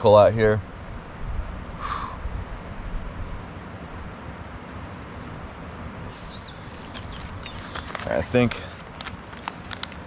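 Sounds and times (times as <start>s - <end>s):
rushing outdoor background: 0.0s - 10.0s
small birds chirping: 3.9s - 5.3s, 6.1s - 8.8s.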